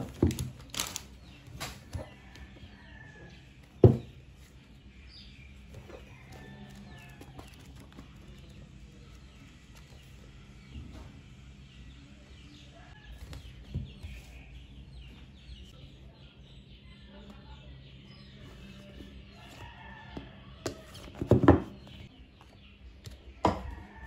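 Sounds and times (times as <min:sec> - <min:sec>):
birds chirping: 0:00.0 - 0:24.0
book knocking on desk: 0:03.8 - 0:04.1, 0:20.6 - 0:21.8.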